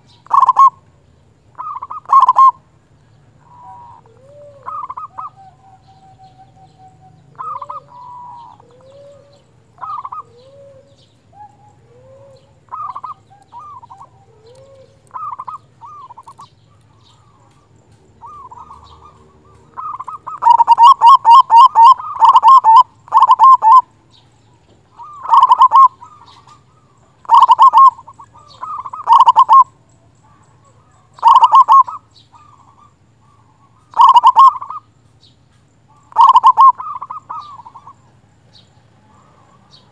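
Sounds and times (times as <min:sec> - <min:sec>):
dove cooing: 0:00.0 - 0:00.9, 0:01.5 - 0:34.9, 0:35.8 - 0:39.9.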